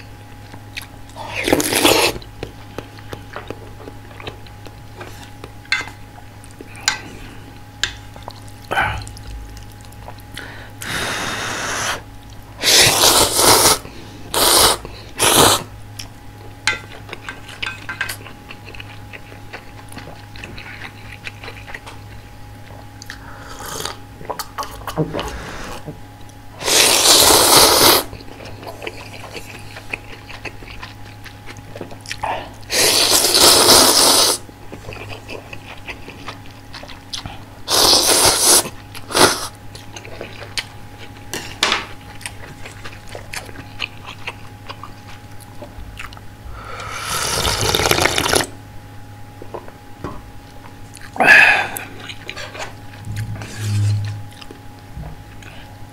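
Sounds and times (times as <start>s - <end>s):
slurping noodles: 1.3s - 2.2s, 12.6s - 15.7s, 26.6s - 28.1s, 32.7s - 34.4s, 37.7s - 39.5s, 46.8s - 48.5s
chewing: 7.9s - 10.5s, 16.0s - 23.2s, 28.1s - 32.7s, 34.6s - 37.5s, 39.7s - 46.2s, 50.5s - 51.2s, 51.8s - 54.6s.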